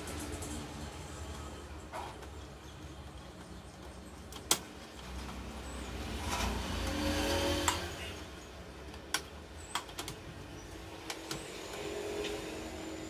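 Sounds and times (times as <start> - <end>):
sharp plastic clicks: 4.2 - 5.4, 8.8 - 10.3.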